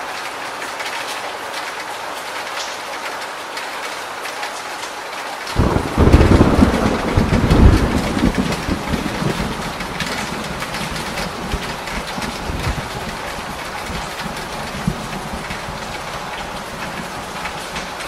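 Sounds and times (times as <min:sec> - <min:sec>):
steady rain: 0:00.0 - 0:18.0
water dripping off roof edge: 0:00.1 - 0:18.0
deep thunder rumble: 0:05.6 - 0:18.0.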